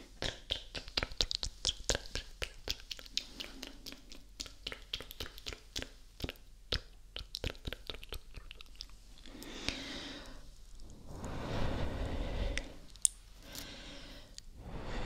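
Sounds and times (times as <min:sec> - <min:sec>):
lip and tongue clicks: 0:00.2 - 0:09.4
soft breathy hiss: 0:09.0 - 0:15.0.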